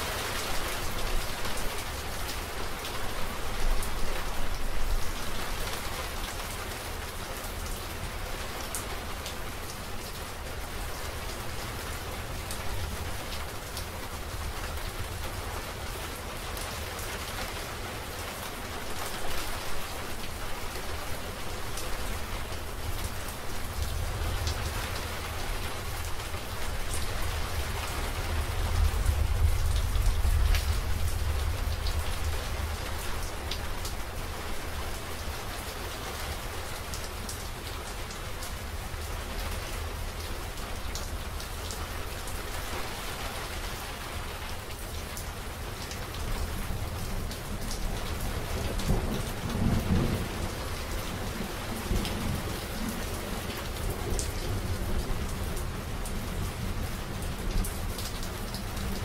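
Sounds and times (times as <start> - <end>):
steady rain: 0.0 - 59.0.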